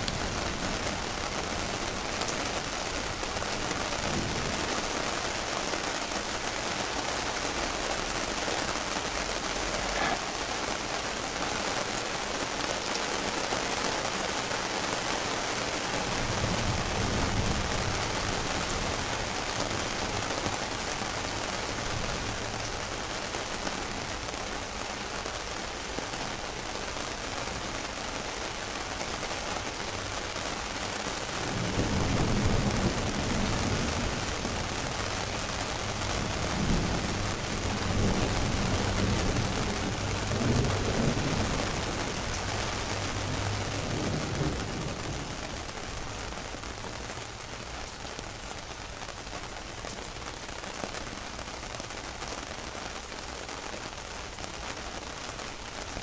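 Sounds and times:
heavy rain falling: 0.0 - 56.0
thunder rumbling: 31.3 - 47.1.

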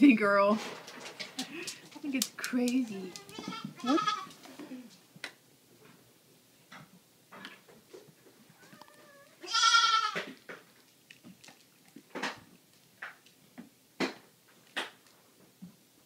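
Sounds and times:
goat kid bleating: 2.8 - 4.4, 8.6 - 10.3.

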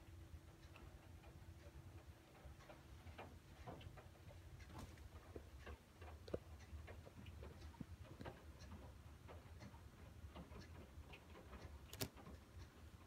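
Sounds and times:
low steady hum: 0.0 - 13.0
sharp click: 11.9 - 12.3.

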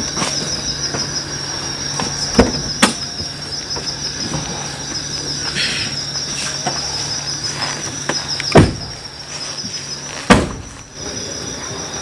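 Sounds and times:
crickets chirping: 0.0 - 12.0
car door opening and shutting: 1.8 - 5.4, 7.6 - 11.0.

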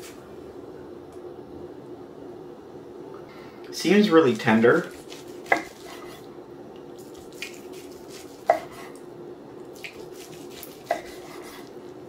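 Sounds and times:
knife slicing meat: 4.8 - 6.3, 7.0 - 9.0, 9.8 - 11.8.

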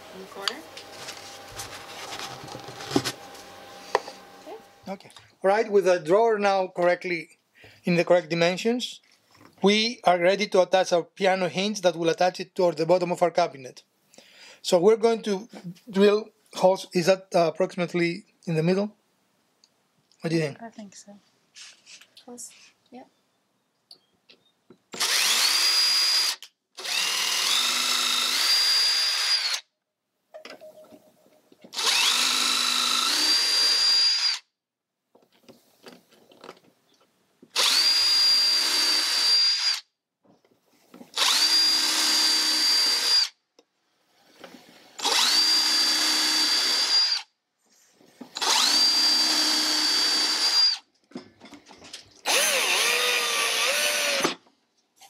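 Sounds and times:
cordless drill whining: 0.1 - 4.8, 24.9 - 29.7, 31.7 - 34.5, 37.5 - 39.9, 41.1 - 43.4, 44.9 - 47.3, 48.3 - 50.9, 52.2 - 54.4.

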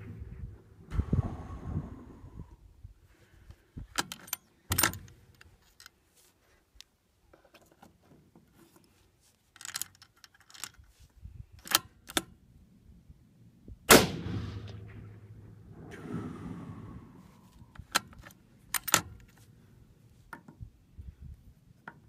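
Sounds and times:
rifle bolt clicks: 11.6 - 12.3, 17.8 - 19.4
rifle shot echoing: 13.9 - 16.8.

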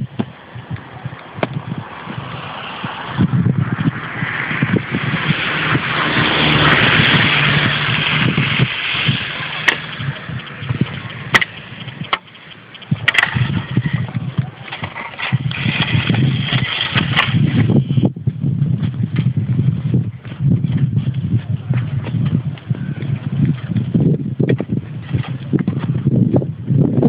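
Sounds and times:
vehicle passing on wet road: 1.8 - 12.0.

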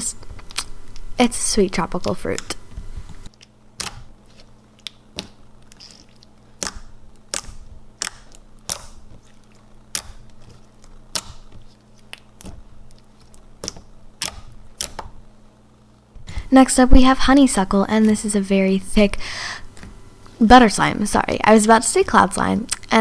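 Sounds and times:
slime clicking and popping: 6.6 - 10.5, 11.1 - 12.6, 13.6 - 15.2.

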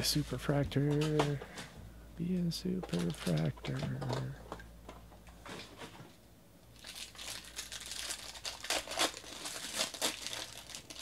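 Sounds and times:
foil wrapper crinkling: 2.8 - 3.8, 6.7 - 11.0.

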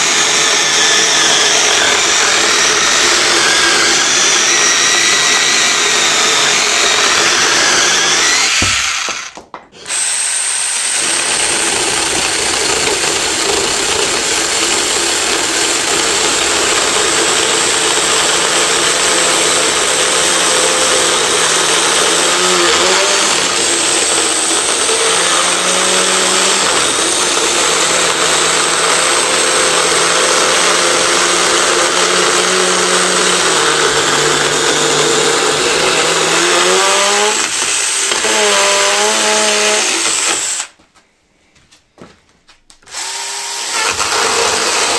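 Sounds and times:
mini chainsaw cutting wood: 0.0 - 40.8, 42.9 - 44.9.

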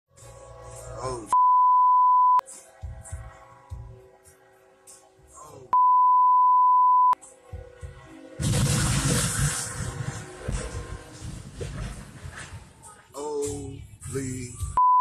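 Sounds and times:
censor bleep: 1.3 - 2.4, 5.8 - 7.2, 14.8 - 15.0
loud crash and grinding roar: 8.3 - 12.9.

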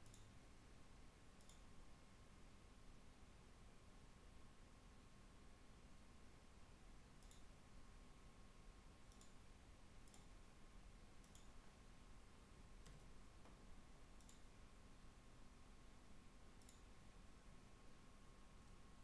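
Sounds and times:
faint computer mouse clicks: 0.0 - 0.3, 1.4 - 1.7, 7.2 - 7.5, 9.1 - 9.4, 10.0 - 10.3, 11.2 - 11.6, 14.2 - 14.5, 16.6 - 16.9
room hiss: 0.0 - 19.0.

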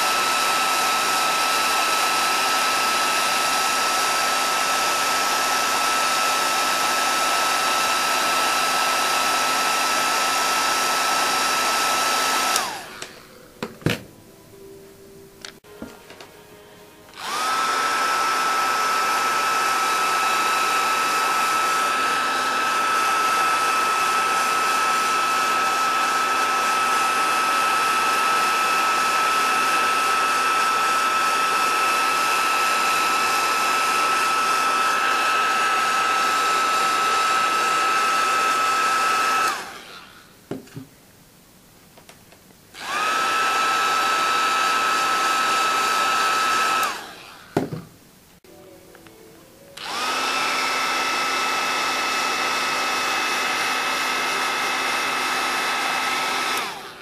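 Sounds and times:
hot air blower fan whine: 0.0 - 14.7, 15.6 - 40.8, 42.8 - 47.9, 49.6 - 57.0.

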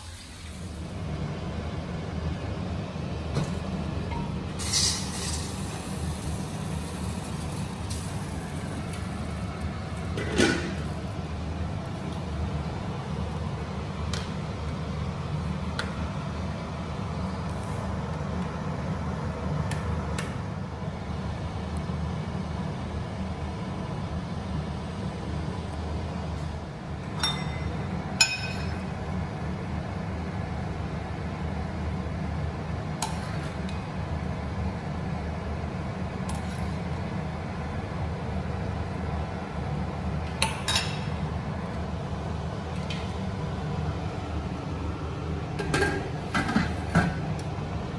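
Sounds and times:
steady low hum: 0.0 - 47.9
utensils clinking against pot: 27.1 - 28.8, 40.4 - 41.1.

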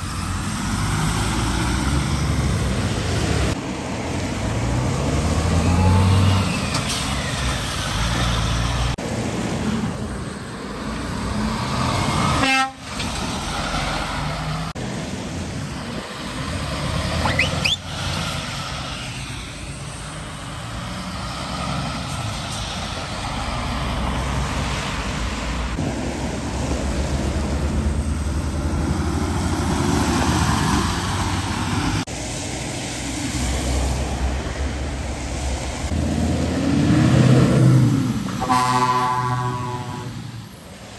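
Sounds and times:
trucks driving past: 0.0 - 40.9
tyres hissing on wet road: 0.0 - 40.9
truck horn blast: 12.4 - 13.0, 38.4 - 40.2.

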